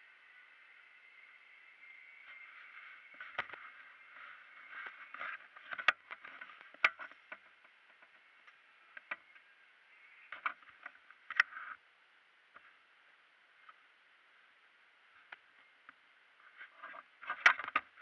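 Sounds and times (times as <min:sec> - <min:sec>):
camera rubbing against clothing: 0:02.2 - 0:07.6.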